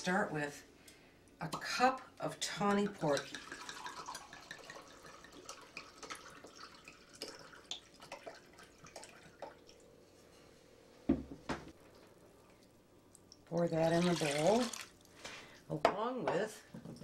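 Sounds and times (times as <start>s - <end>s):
wine pouring into a glass cup: 3.0s - 9.8s, 13.6s - 15.0s.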